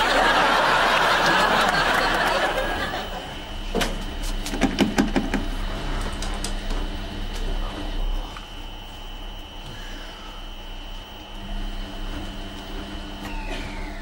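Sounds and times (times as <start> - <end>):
studio audience laughing: 0.0 - 3.5
washing machine clicks and knocks: 3.8 - 5.5.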